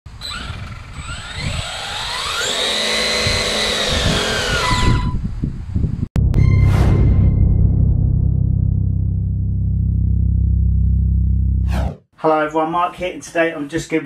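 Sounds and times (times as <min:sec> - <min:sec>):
electric motor revving whine: 0:00.2 - 0:05.0
deep drum hit of music: 0:06.2 - 0:11.1.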